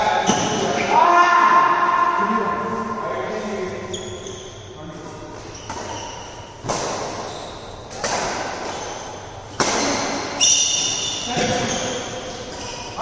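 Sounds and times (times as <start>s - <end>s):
badminton racket hitting shuttlecock: 7.9s - 11.1s.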